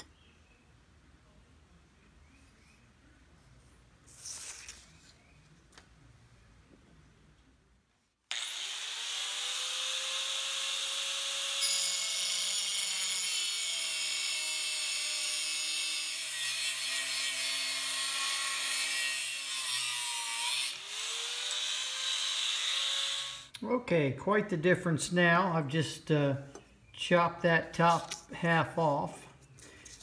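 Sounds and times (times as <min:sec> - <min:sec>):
angle grinder cutting steel: 0:08.3 - 0:23.5.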